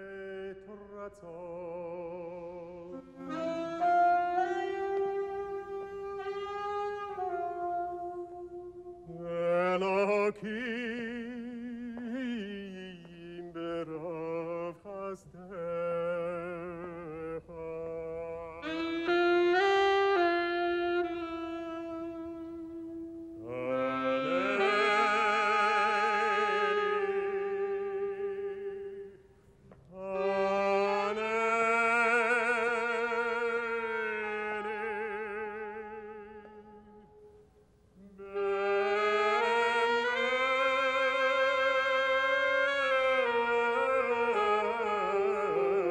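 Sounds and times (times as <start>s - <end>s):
man singing with vibrato: 0.0s - 37.4s, 38.0s - 45.9s
man chanting with vibrato: 23.4s - 29.1s.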